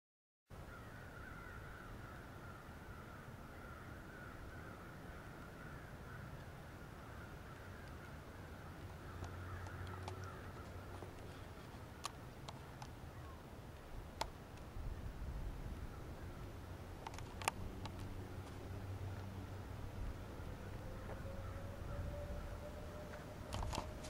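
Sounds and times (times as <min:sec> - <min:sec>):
low rumble of wind: 0:00.5 - 0:24.0
distant chorus of animal calls: 0:00.6 - 0:13.5, 0:17.4 - 0:24.0
light ticks: 0:09.2 - 0:13.0.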